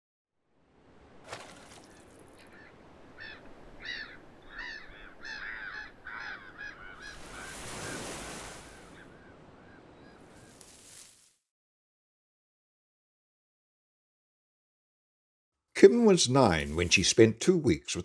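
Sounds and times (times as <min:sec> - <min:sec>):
gulls squawking: 0:01.7 - 0:10.7
wave washing in and out: 0:06.8 - 0:11.0.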